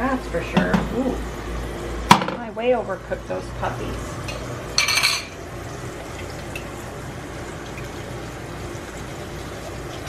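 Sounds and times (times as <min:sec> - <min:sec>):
eggs sizzling in a skillet: 0:03.6 - 0:10.0.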